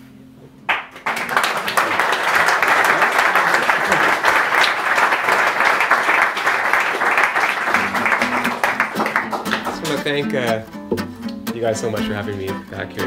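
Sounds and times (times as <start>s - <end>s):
audience applauding: 0.7s - 10.5s
acoustic guitar note: 7.8s - 13.0s.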